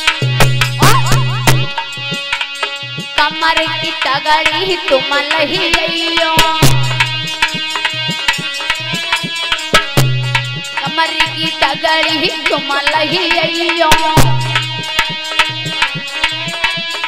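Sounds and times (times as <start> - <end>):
dholak drum rhythm: 0.0 - 17.0
sustained melody line: 0.0 - 17.0
deep drum note: 0.2 - 1.9.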